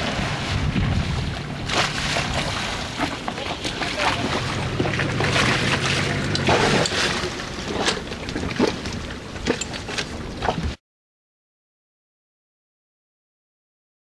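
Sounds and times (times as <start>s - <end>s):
water slapping hull: 0.0s - 10.8s
water sloshing and splashing: 0.0s - 10.8s.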